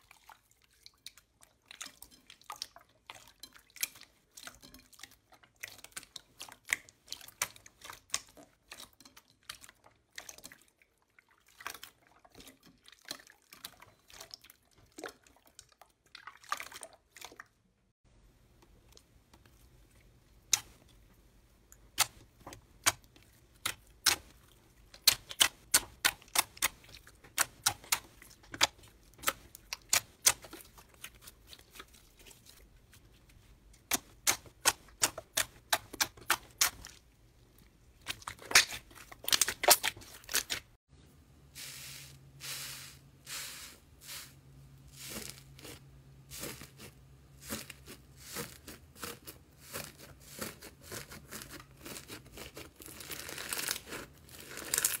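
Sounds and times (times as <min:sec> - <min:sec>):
crusty slime crackling: 0:45.0 - 0:55.0.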